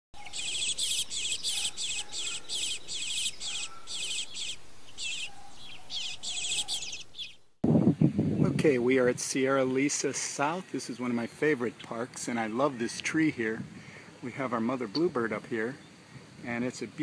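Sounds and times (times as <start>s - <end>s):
bird fledgling begging calls: 0.2s - 7.5s.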